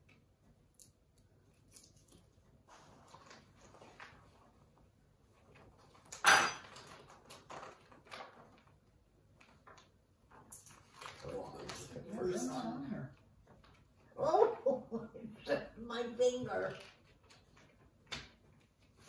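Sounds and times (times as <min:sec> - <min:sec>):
wrappers crinkling and rustling: 0:01.9 - 0:04.8, 0:05.4 - 0:12.2.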